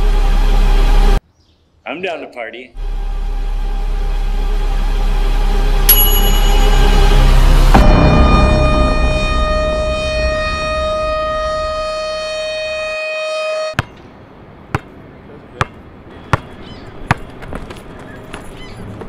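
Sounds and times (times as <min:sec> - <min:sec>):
long steady tone with overtones: 0:02.8 - 0:13.8
basketball bouncing on asphalt: 0:13.8 - 0:14.1, 0:14.7 - 0:15.0, 0:15.6 - 0:19.0.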